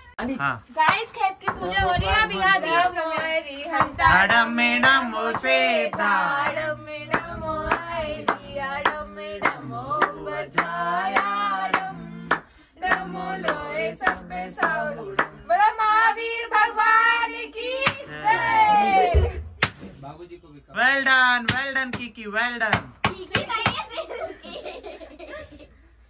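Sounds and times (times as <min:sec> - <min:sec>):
sharp rhythmic claps: 0:03.1 - 0:15.4, 0:19.6 - 0:19.8, 0:21.4 - 0:23.8.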